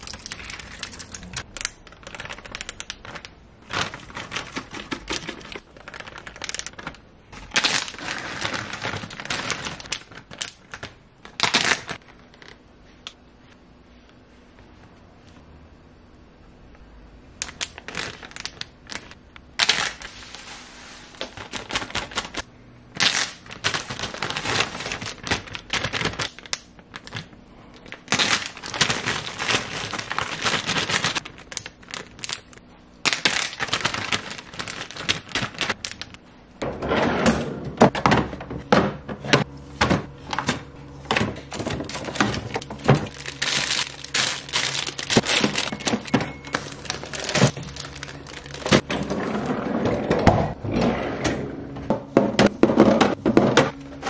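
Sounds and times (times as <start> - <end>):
plastic bags crinkling: 0.0 - 12.6, 17.4 - 36.2, 41.4 - 49.3.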